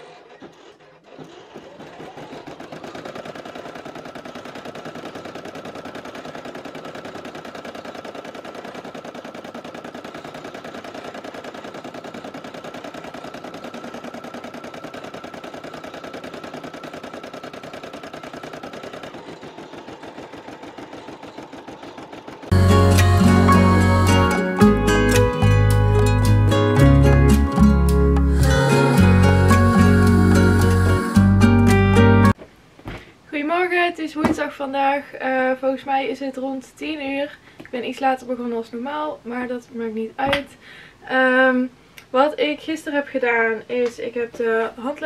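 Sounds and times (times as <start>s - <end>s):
embroidery machine needle clatter: 1.3s - 22.5s.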